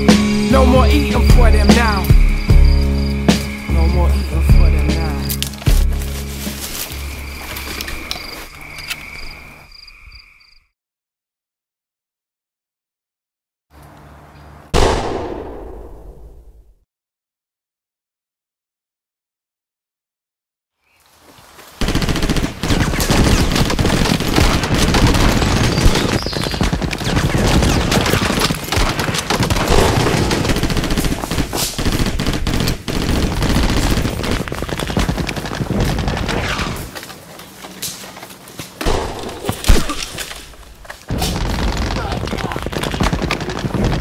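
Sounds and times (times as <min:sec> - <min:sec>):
heavy rapid gunfire: 0:21.8 - 0:36.9, 0:41.1 - 0:44.0.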